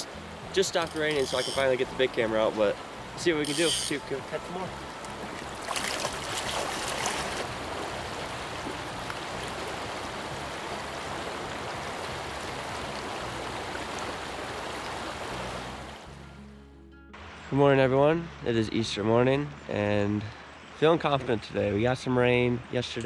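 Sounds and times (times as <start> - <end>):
river rushing over gravel: 0.0 - 16.1.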